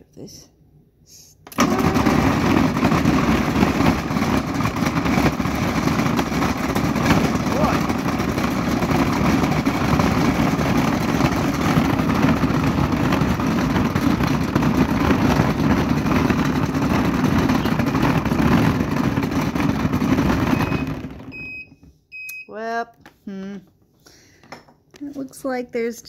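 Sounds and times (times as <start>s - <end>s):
food processor running: 1.5s - 21.6s.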